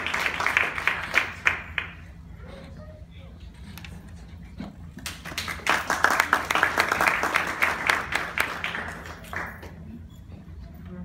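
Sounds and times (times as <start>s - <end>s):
small audience applauding: 0.0s - 2.2s, 5.0s - 9.8s.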